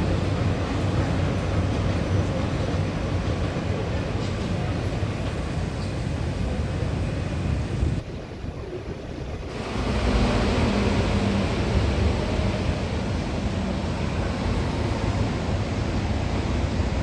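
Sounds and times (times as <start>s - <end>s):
metro train rumbling on track: 0.0s - 17.0s
wind noise on microphone: 6.1s - 14.0s.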